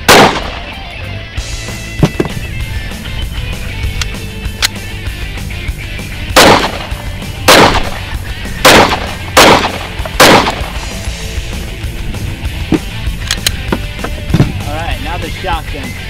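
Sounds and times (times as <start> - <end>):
pistol shots: 0.0 - 0.8, 6.3 - 10.9
background music: 0.0 - 16.0.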